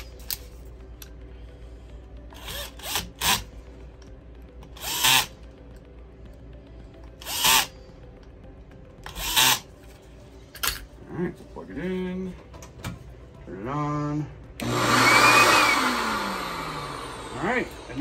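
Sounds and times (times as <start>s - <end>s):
cordless drill whining: 4.8s - 5.3s, 7.2s - 7.7s, 9.0s - 9.7s, 14.6s - 18.0s.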